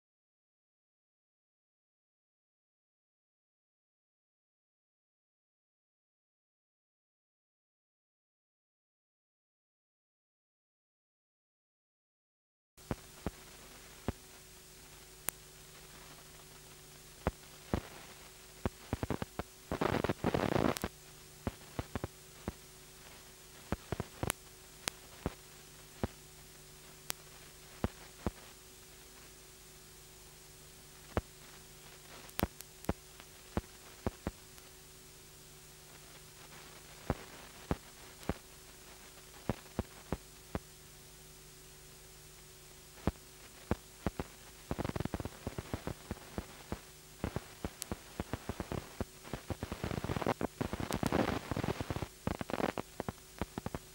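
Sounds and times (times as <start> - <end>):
sharp clicks and crackles: 12.8 - 29.4, 30.9 - 34.8, 35.9 - 40.7, 43.0 - 53.9
low electrical hum: 12.8 - 53.9
recording hiss: 12.8 - 53.9.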